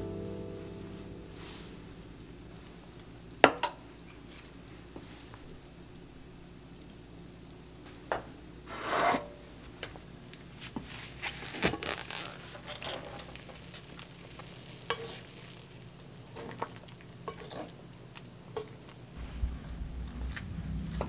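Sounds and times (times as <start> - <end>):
soup bubbling in a pot: 11.6 - 21.0
short rush of noise: 19.2 - 21.0.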